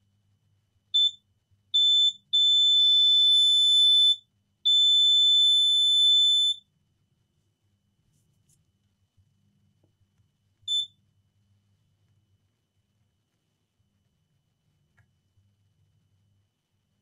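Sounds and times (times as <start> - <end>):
multimeter beeps: 1.0 - 1.2, 1.8 - 6.6, 10.7 - 11.0.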